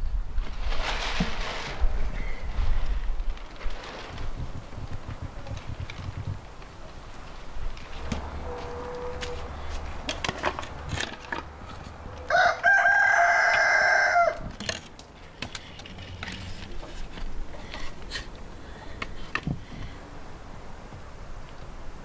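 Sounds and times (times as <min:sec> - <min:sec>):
wooden boards knocking and clattering: 0:07.9 - 0:09.4, 0:10.0 - 0:12.0
rooster crowing: 0:08.2 - 0:09.7, 0:12.0 - 0:14.5.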